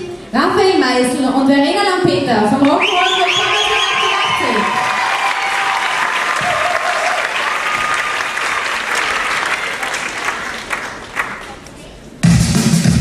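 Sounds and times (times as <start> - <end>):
audience applauding: 2.6 - 11.7.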